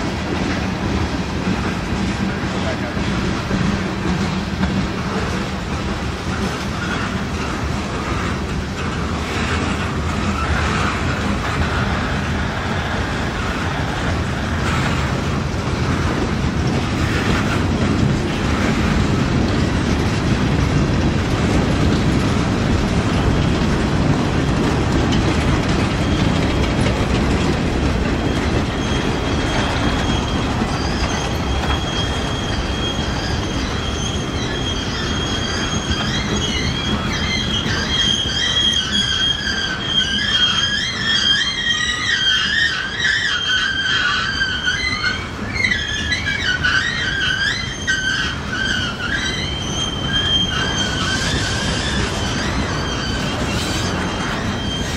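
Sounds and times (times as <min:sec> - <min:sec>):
freight train wheels rumbling: 0:00.0 - 0:54.9
high wheel squeal: 0:24.3 - 0:54.9.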